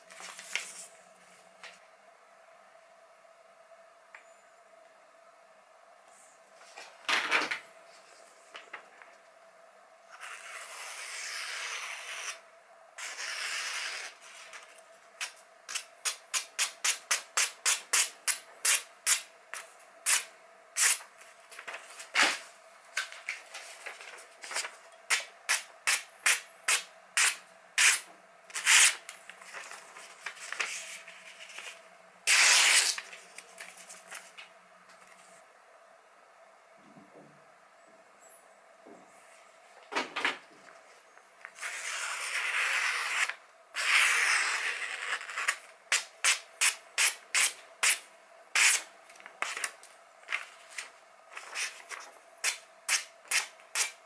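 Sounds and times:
knife slicing paper: 29.6s - 33.1s, 41.6s - 48.0s, 48.6s - 48.9s, 50.8s - 54.0s.

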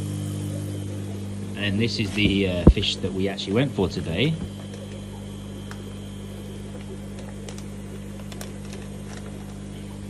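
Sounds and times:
low electrical hum: 0.0s - 10.0s.

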